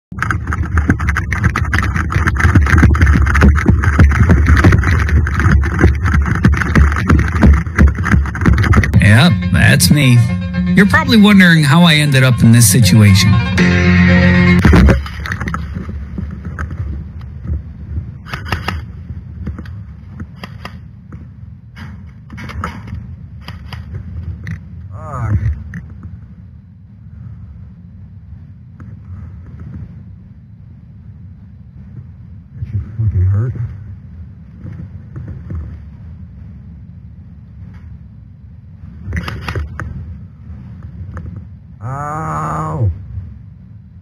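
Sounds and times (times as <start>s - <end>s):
wind rumble: 0.1s - 10.3s, 14.6s - 41.9s
handling knocks and rattles: 0.2s - 9.0s
camera handling noise: 18.2s - 18.9s, 19.5s - 20.8s.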